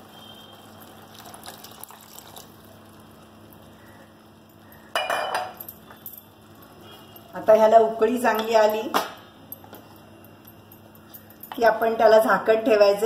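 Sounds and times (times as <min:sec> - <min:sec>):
water pouring into a pot: 0:00.0 - 0:03.6.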